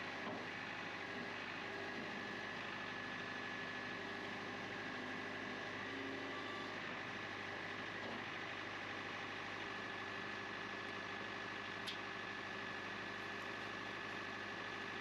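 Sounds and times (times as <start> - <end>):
sharp click: 11.8 - 12.0.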